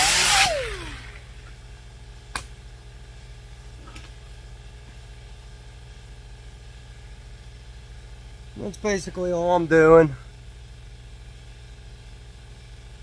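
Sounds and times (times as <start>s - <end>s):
air tool spinning down: 0.0s - 1.4s
steady low hum: 0.0s - 13.0s.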